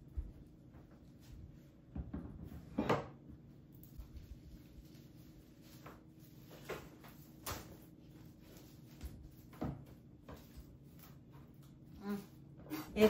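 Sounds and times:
soft knocks and clunks: 1.9 - 3.2.

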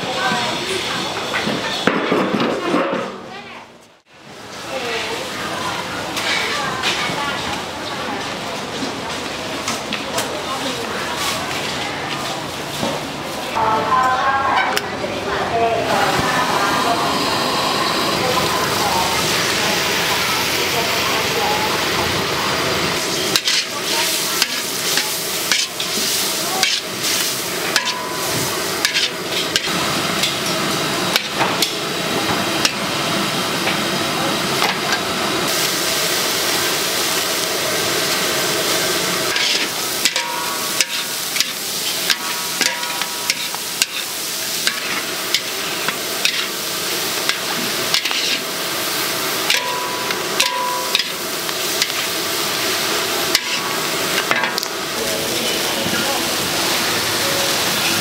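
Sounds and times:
noodles sizzling: 15.6 - 58.0
metal spatula scraping pan: 23.3 - 30.4, 39.3 - 46.6, 47.3 - 48.5, 53.3 - 53.7.

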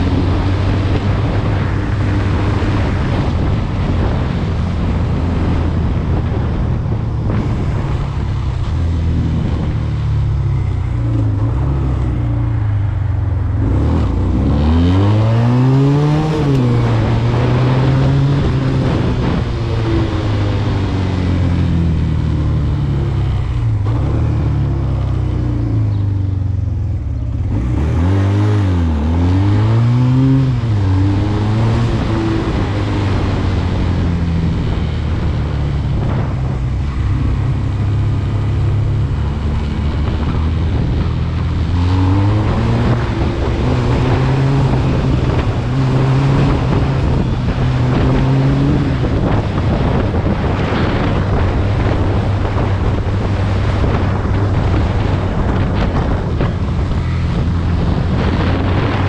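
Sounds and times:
quad bike engine revving: 37.0 - 59.0.

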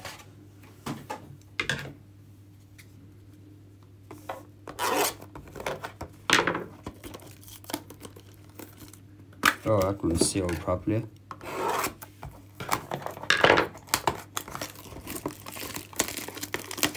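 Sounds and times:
plastic shrink-wrap tearing: 7.0 - 9.0, 13.7 - 16.9.

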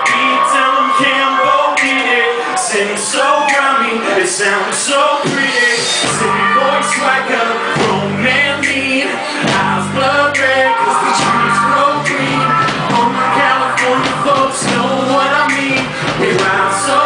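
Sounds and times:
man singing into a microphone: 0.0 - 17.0
low bass notes: 6.0 - 17.0.

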